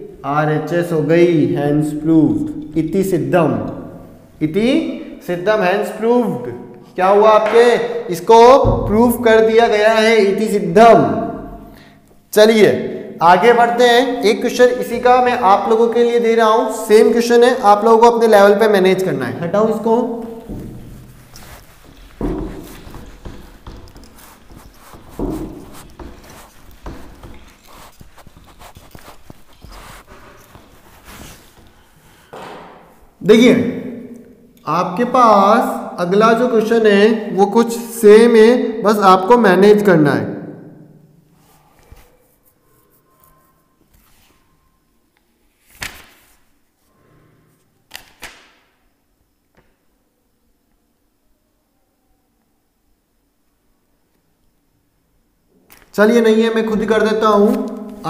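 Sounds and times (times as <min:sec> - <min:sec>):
duster rubbing a whiteboard: 0:20.4 - 0:32.3
book pages flipping: 0:21.0 - 0:32.3, 0:41.9 - 0:44.4, 0:45.5 - 0:46.5, 0:47.9 - 0:48.5.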